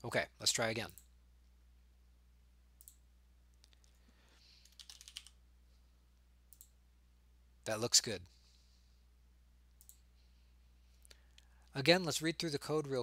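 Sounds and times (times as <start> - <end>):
computer keyboard keystrokes: 4.6 - 5.4.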